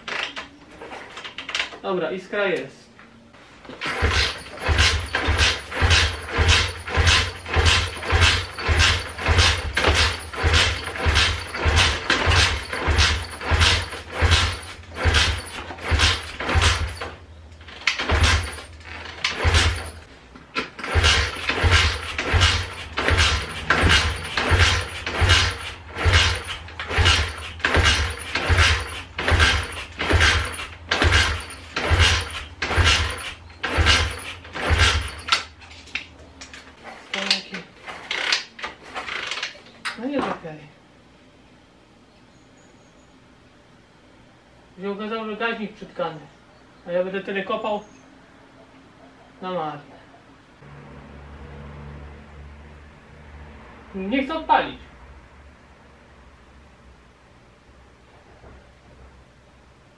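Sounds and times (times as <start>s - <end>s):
motorbike engine kick-start thuds: 3.7s - 35.6s.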